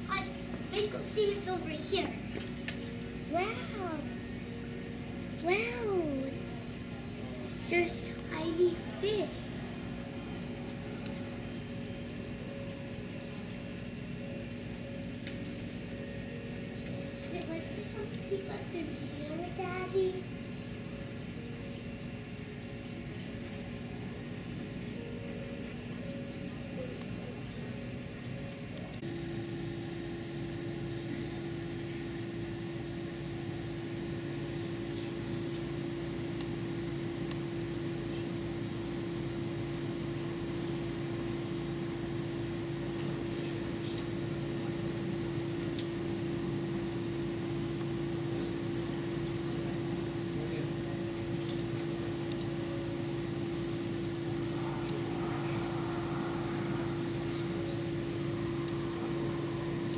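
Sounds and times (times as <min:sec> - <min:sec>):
aquarium equipment humming: 0:00.0 - 0:59.9.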